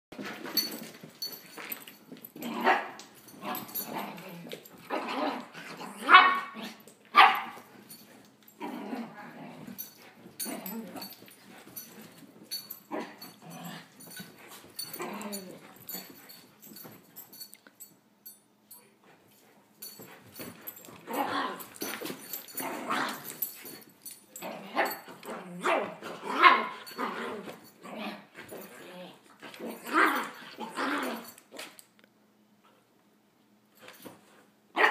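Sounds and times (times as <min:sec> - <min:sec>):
dogs barking: 0:07.2 - 0:07.6.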